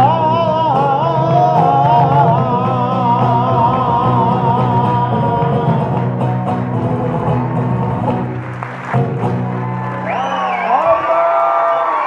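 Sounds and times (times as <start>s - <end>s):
man singing: 0.0s - 8.4s
acoustic guitars playing: 0.0s - 10.6s.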